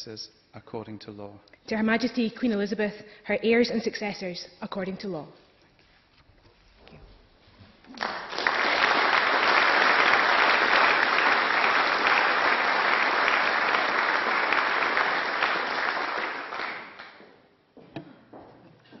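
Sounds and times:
crowd applauding: 7.9 - 17.2.

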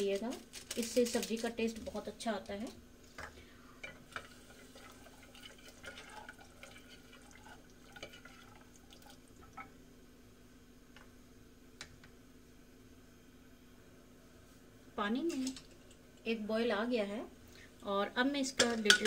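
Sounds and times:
gravy sloshing while stirred: 4.1 - 9.7.

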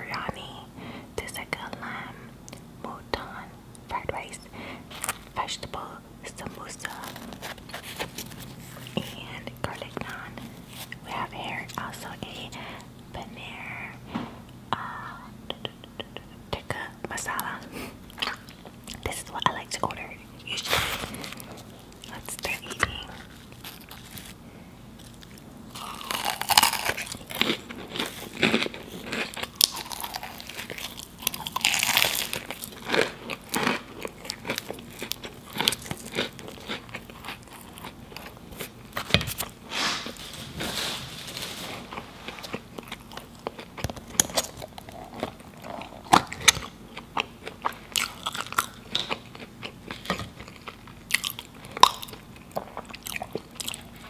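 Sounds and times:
crisp pastry crunching: 6.4 - 12.0, 20.4 - 40.2, 41.3 - 54.0
chewing with wet mouth clicks: 26.1 - 38.7, 42.5 - 54.0.

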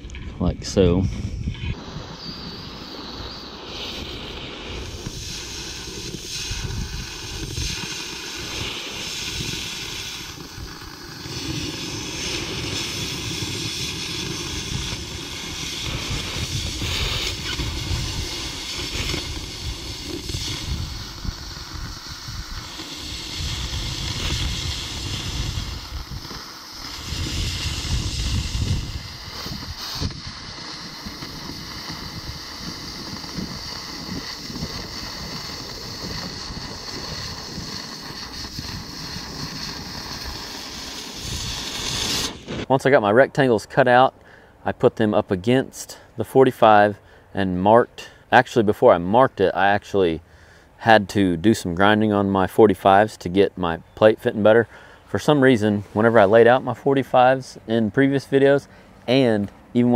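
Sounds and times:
wind rumble on microphone: 0.0 - 42.7
cutting torch hissing: 0.6 - 42.8.

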